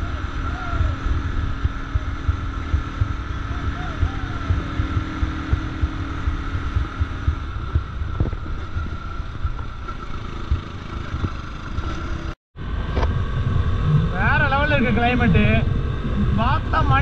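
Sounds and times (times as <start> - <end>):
wind buffeting microphone: 0.0 - 11.6
steady engine hum: 0.0 - 17.0.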